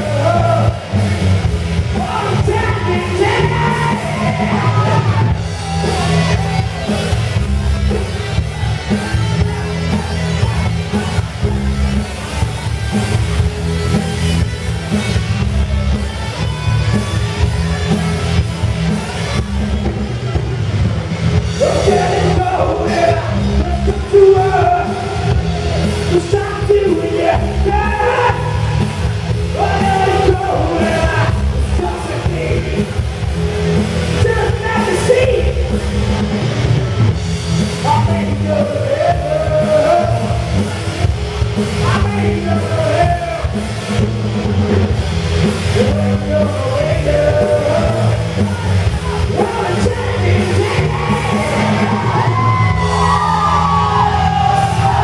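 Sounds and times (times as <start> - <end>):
rock band playing: 0.0 - 55.0
person singing: 1.9 - 7.0, 37.8 - 40.7, 45.7 - 55.0.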